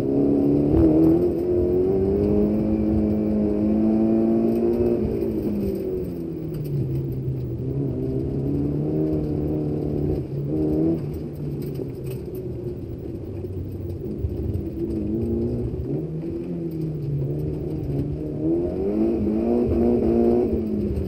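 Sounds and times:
car engine revving: 0:00.0 - 0:21.0.

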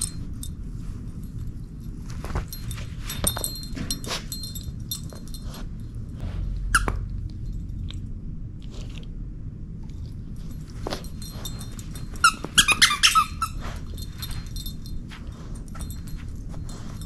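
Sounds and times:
jingle bell tinkling: 0:00.0 - 0:06.2, 0:10.4 - 0:17.0
toy squeak: 0:06.7 - 0:07.0, 0:12.2 - 0:13.7
dog chewing plush toy: 0:09.8 - 0:17.0.

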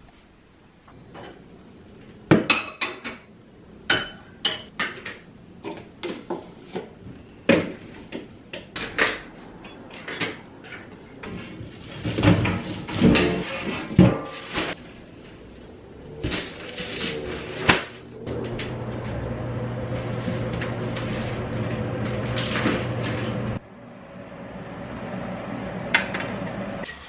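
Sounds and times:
dishes clinking and knocking: 0:03.9 - 0:06.5
metal baking tray clattering: 0:11.3 - 0:14.8.

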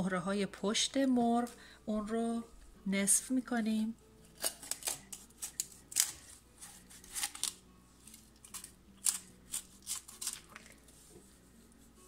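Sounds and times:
knife crunching through bone: 0:04.2 - 0:10.8.

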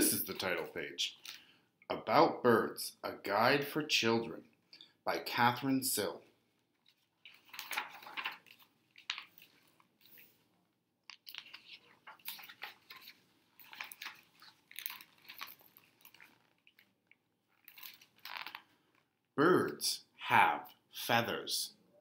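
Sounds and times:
book pages turning: 0:06.6 - 0:10.5, 0:11.1 - 0:19.0.

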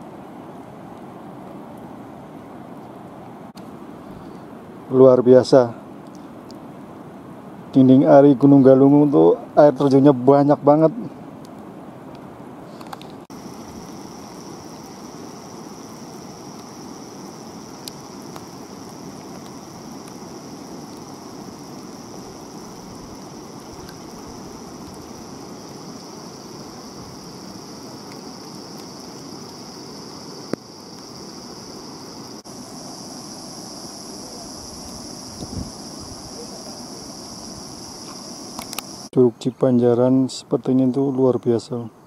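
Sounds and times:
steady rushing outdoor noise: 0:00.0 - 0:39.2
sharp click: 0:38.6 - 0:38.9.

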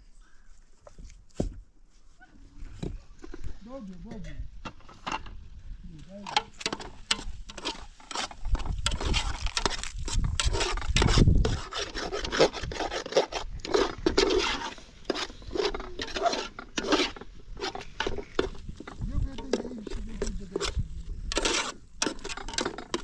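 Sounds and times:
rough scraping on wood: 0:06.2 - 0:23.0.

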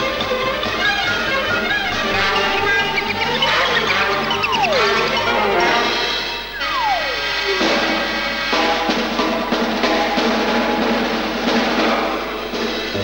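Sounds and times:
cartoon soundtrack music: 0:00.0 - 0:10.6
gliding note sliding downward: 0:01.5 - 0:08.6.

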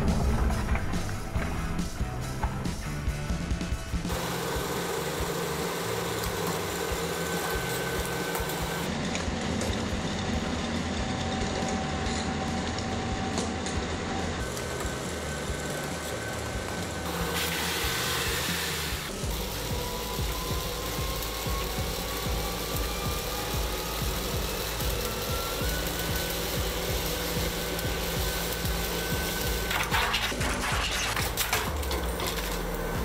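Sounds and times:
treadmill motor hum and whine: 0:00.0 - 0:33.0.

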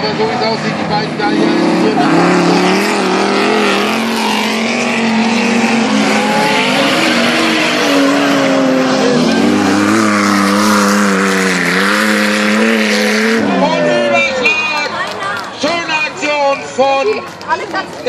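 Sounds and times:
race car engines at high revs: 0:00.0 - 0:14.2
deeper car engine: 0:00.0 - 0:14.9
tyre and dirt noise: 0:00.0 - 0:18.0.

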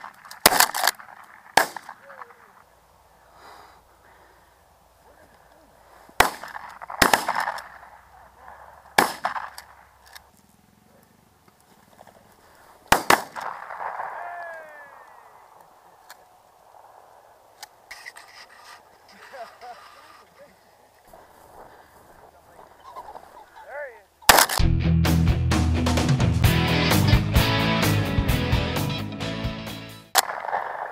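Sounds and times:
shotgun shots echoing: 0:00.0 - 0:02.6, 0:06.2 - 0:09.8, 0:12.9 - 0:15.5, 0:24.2 - 0:24.6, 0:30.1 - 0:30.9.

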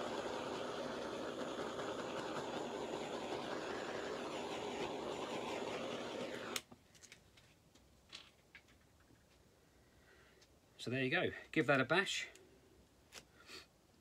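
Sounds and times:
blowtorch flame hissing: 0:00.0 - 0:06.7
blowtorch shut-off click: 0:00.0 - 0:06.7.

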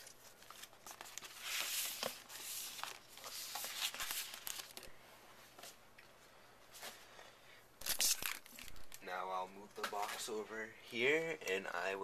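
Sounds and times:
cardboard packaging rustling: 0:00.0 - 0:05.0.

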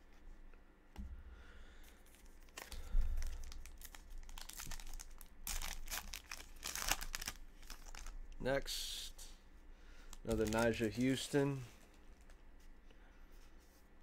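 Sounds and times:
wrapper crinkling: 0:02.0 - 0:08.2, 0:10.1 - 0:12.4.

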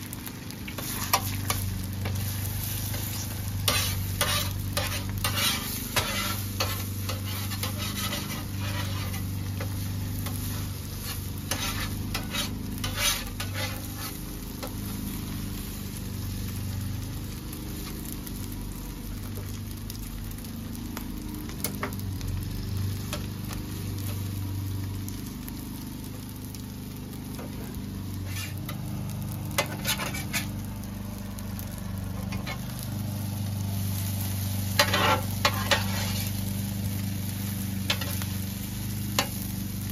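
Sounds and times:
food sizzling on griddle: 0:00.0 - 0:39.9
metal spatula scraping griddle: 0:00.2 - 0:16.0, 0:27.3 - 0:30.7, 0:31.6 - 0:39.8.

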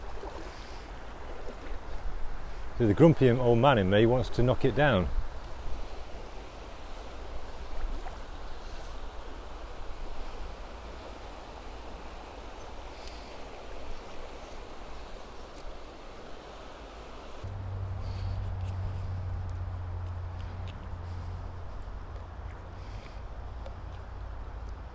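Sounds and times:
river flowing over stones: 0:00.0 - 0:18.3.

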